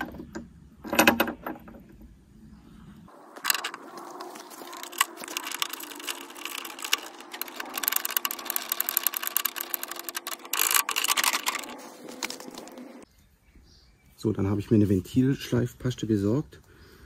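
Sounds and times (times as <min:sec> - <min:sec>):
rattle of clicks from mower reel: 0:03.4 - 0:13.0.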